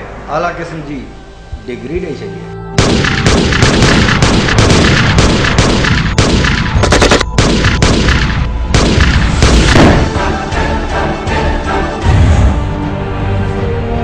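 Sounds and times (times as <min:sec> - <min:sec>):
rapid gunshots: 0:02.8 - 0:10.2
loud explosion: 0:02.8 - 0:10.4.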